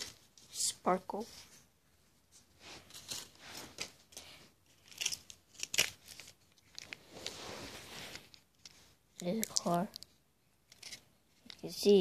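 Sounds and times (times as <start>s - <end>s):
paper rustling: 0.0s - 0.7s, 2.3s - 9.8s.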